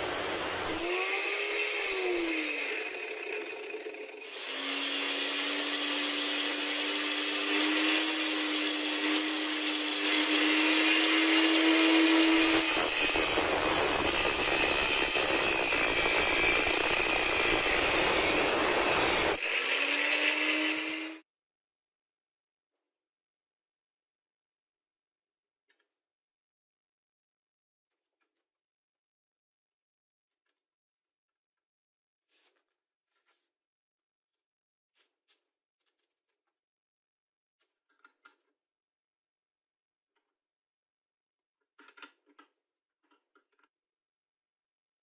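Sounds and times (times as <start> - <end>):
angle grinder grinding steel: 0.0 - 21.2
grinder motor whining: 0.0 - 21.2.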